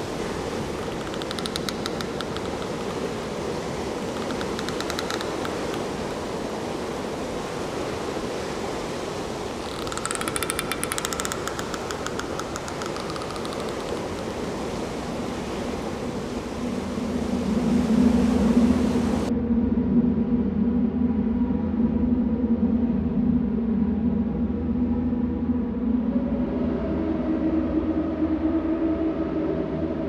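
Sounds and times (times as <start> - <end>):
fast clicking buzz: 0.0 - 6.4, 9.6 - 15.0
sea surf breaking on rocks: 0.0 - 19.3.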